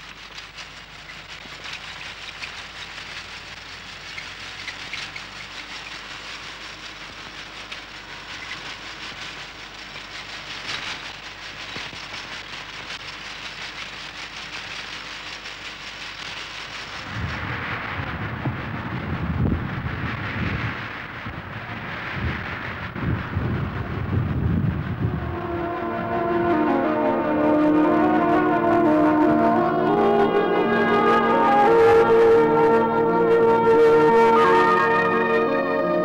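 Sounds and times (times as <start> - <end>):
hiss with crackle: 0.0 - 36.0
wind rumble on microphone: 16.9 - 29.2.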